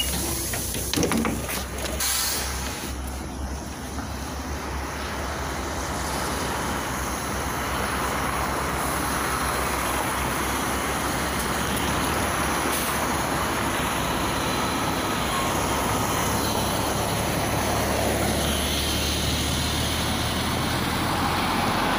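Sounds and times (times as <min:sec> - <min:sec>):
bus engine running: 0:00.0 - 0:21.9
street traffic: 0:00.0 - 0:21.9.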